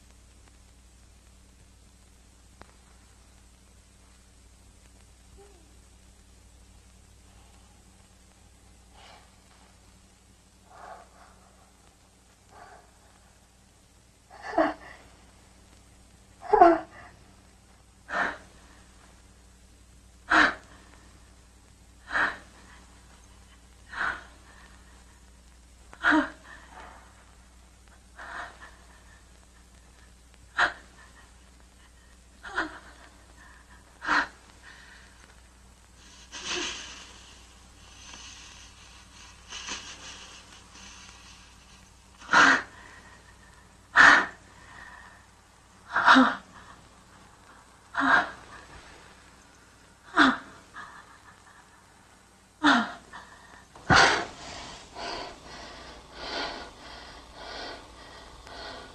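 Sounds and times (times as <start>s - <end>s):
hiss: 34.0s - 43.4s, 53.8s - 58.9s.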